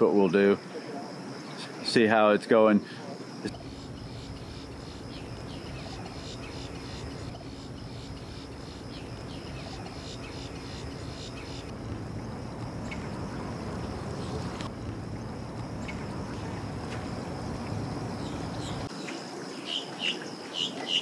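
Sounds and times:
high-pitched insect drone: 3.3s - 18.9s
low steady hum: 3.5s - 18.9s.

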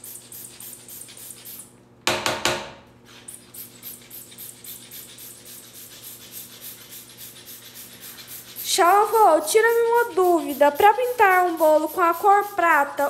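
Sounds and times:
hand pump puffing: 3.6s - 13.0s.

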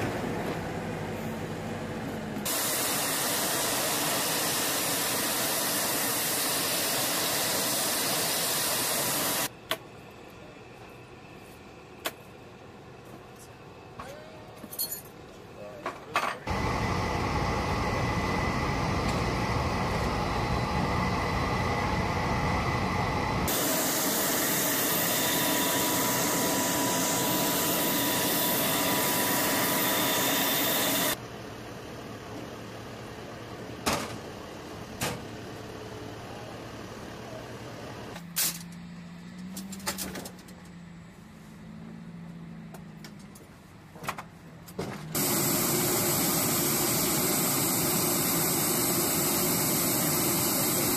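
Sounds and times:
helicopter turbine engines and rotors: 0.0s - 15.6s, 16.5s - 41.0s, 45.1s - 50.9s
distant engine noise: 15.2s - 50.9s
low hum: 16.5s - 33.7s.

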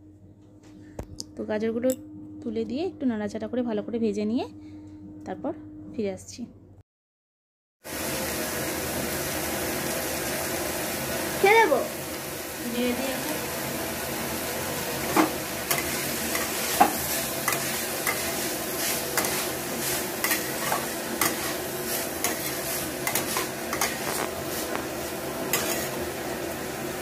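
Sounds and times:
vegetables sizzling in a wok: 7.8s - 27.0s
metal spatula scraping a pan: 15.0s - 26.1s.

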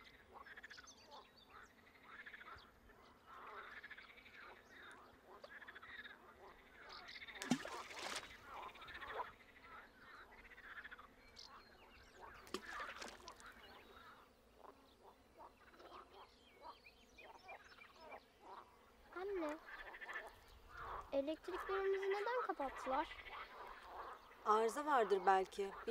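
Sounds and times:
stones plopping into water: 7.4s - 8.4s, 12.4s - 13.4s
faint animal calls: 12.2s - 25.9s.

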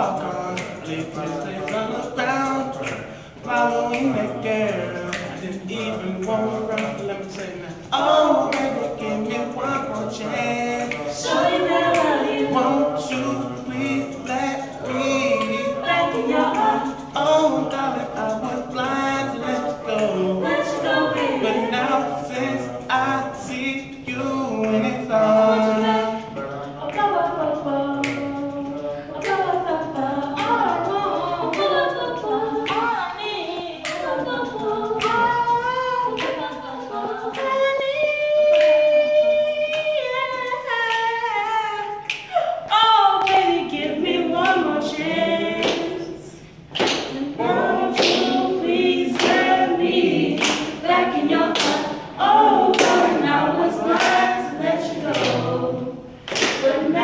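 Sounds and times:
group singing a cappella: 0.0s - 57.0s
soloist singing: 0.0s - 57.0s
sharp hand claps: 0.1s - 4.3s, 5.0s - 19.0s, 28.0s - 28.6s, 29.2s - 29.5s, 33.8s - 36.5s, 38.4s - 39.0s, 42.0s - 42.4s, 43.2s - 44.7s, 45.6s - 46.0s, 46.7s - 55.6s, 56.2s - 57.0s.

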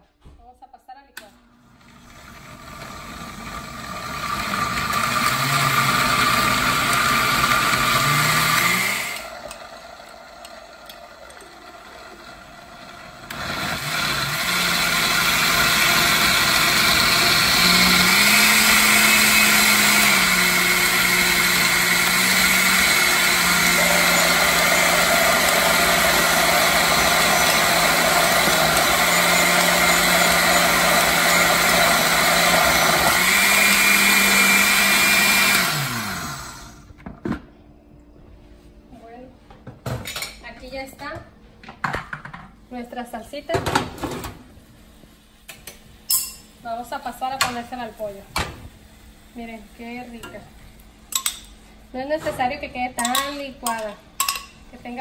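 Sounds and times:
blender motor chopping: 1.7s - 36.9s.

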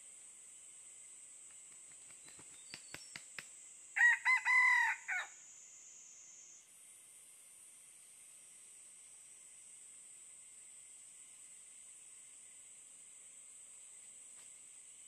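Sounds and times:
rooster crowing: 4.0s - 5.4s.

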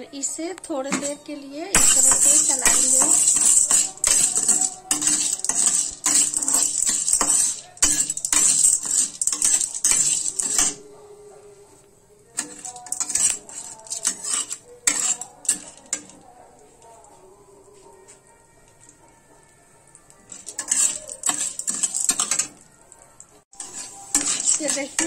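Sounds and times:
spatula stirring kernels in metal pan: 0.8s - 10.9s, 12.3s - 17.1s, 19.9s - 22.7s, 23.5s - 25.0s.

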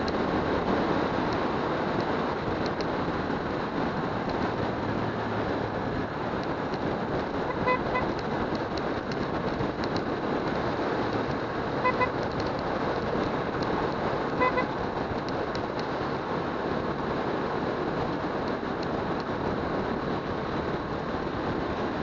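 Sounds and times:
motorcycle riding: 0.0s - 22.0s
horn toots: 7.5s - 8.2s, 11.8s - 12.2s, 14.3s - 14.8s.

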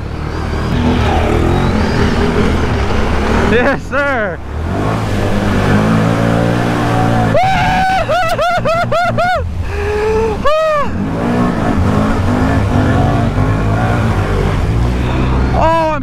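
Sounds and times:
atv engine revving: 0.0s - 16.0s
high-pitched whoops: 6.8s - 8.6s.

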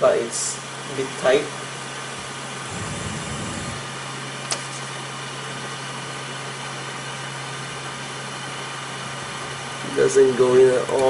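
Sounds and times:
low rumble: 2.6s - 4.0s.

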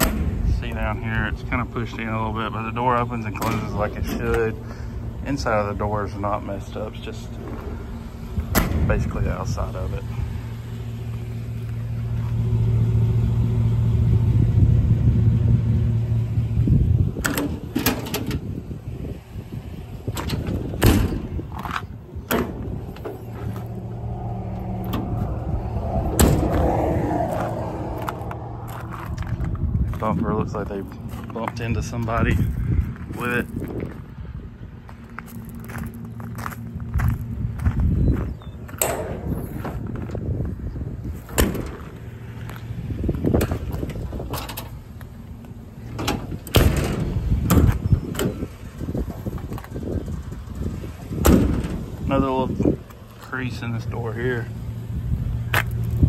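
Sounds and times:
metal compartment doors clunking: 0.0s - 11.8s, 17.1s - 26.6s, 41.3s - 52.3s
metal door latch clicks and clunks: 3.3s - 4.6s, 8.4s - 9.0s, 17.2s - 18.6s, 20.0s - 23.6s, 41.4s - 41.8s, 43.4s - 44.8s, 45.8s - 48.4s, 51.2s - 51.8s.

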